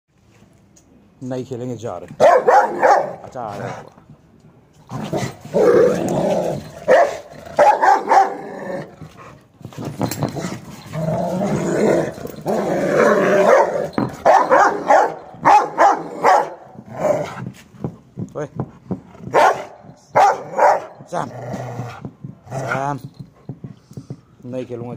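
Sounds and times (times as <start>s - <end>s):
dog barking: 2.2s - 3.2s, 6.9s - 8.4s, 13.4s - 16.7s, 19.3s - 21.0s
dog growling: 4.9s - 9.2s, 10.3s - 14.9s, 21.2s - 22.9s.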